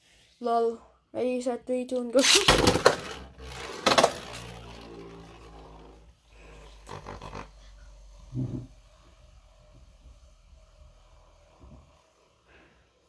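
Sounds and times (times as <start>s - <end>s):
spinning top striking plastic: 2.2s - 6.0s
spinning top whirring: 2.2s - 12.1s.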